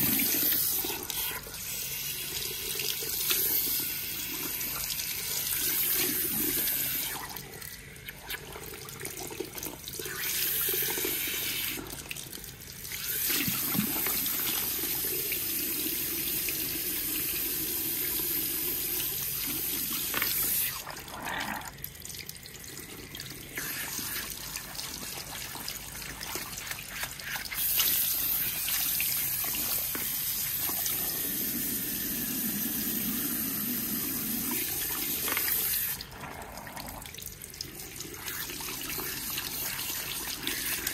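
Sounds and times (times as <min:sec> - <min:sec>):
hand shower spraying water: 0:23.6 - 0:36.0.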